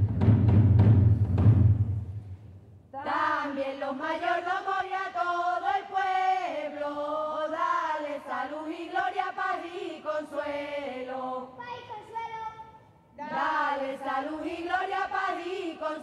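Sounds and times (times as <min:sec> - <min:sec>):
drum strikes: 0:00.0 - 0:02.6
unaccompanied chant with held notes: 0:03.0 - 0:11.6, 0:13.1 - 0:16.0.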